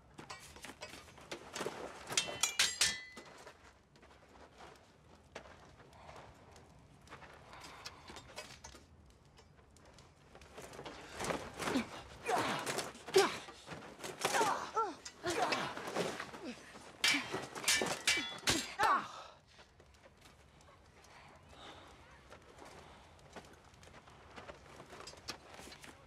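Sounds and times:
steel swords clashing: 2.1 - 3.4, 11.6 - 19.2
fighters grunting and gasping: 11.2 - 19.4.

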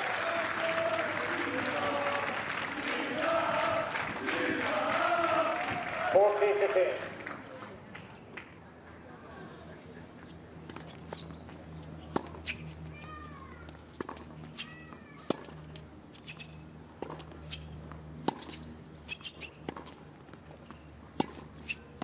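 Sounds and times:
racket hitting tennis ball: 13.9 - 15.6, 18.2 - 22.0.

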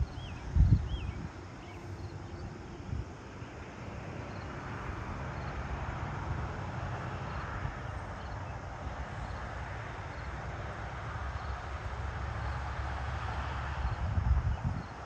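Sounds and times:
faint insect chirps: 0.0 - 5.7
vehicle on distant road: 0.0 - 15.0
wind rumble on microphone: 0.0 - 15.0.

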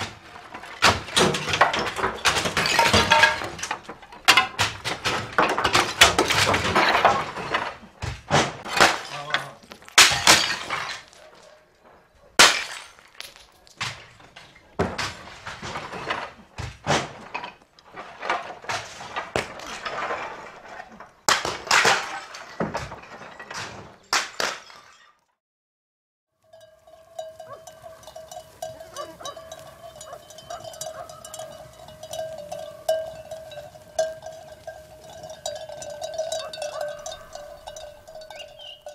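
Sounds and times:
crashes and clatters of objects: 0.0 - 25.2
sheep bells clanking: 26.4 - 38.9.

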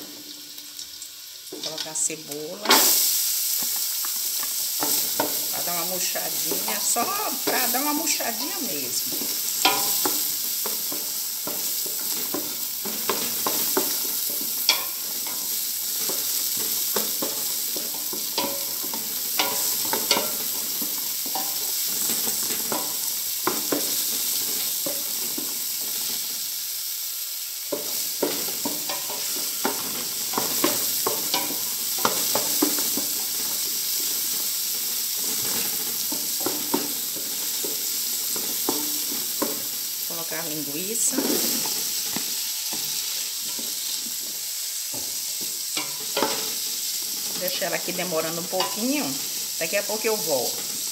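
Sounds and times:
onion sizzling in oil: 0.0 - 50.9
spoon scraping and knocking pot: 9.0 - 21.6.

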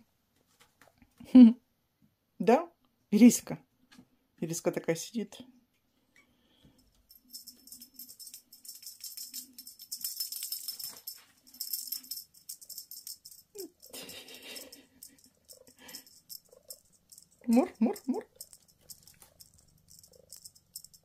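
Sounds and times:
cat toy rattling: 6.9 - 21.0.

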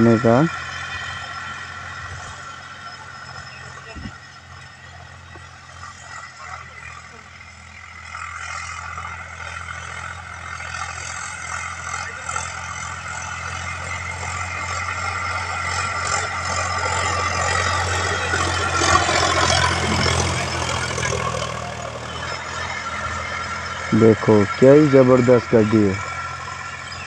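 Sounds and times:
tilling blades churning soil: 0.0 - 27.0
tractor diesel engine running: 0.0 - 27.0.

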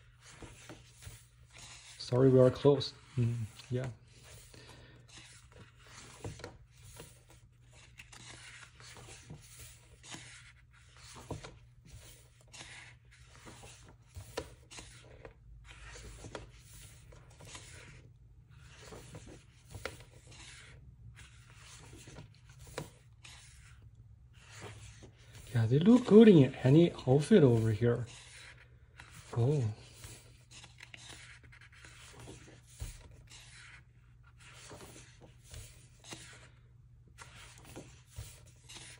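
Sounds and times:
paper pages rustling: 0.0 - 38.9.

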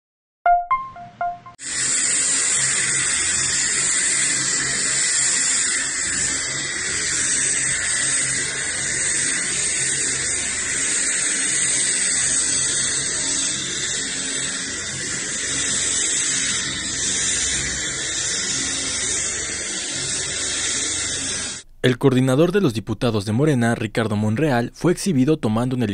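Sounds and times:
helicopter turbine whine: 1.6 - 21.6.

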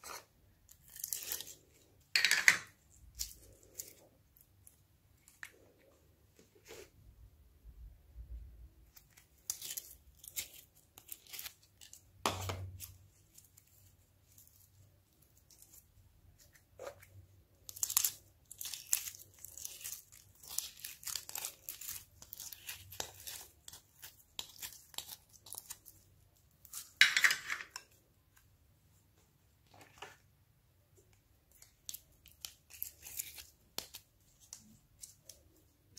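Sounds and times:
slime crackling and tearing: 17.6 - 26.0, 31.5 - 35.4.

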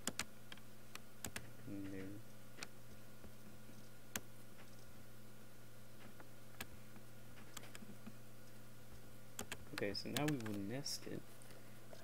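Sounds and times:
computer mouse clicks: 0.0 - 2.7, 9.4 - 10.6
steady low hum: 0.0 - 12.0.

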